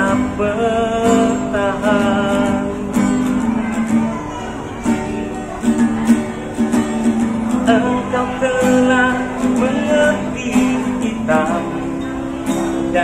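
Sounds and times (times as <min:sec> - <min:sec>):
person singing: 0:00.0 - 0:04.2, 0:07.6 - 0:12.1
strummed acoustic guitar: 0:00.0 - 0:13.0.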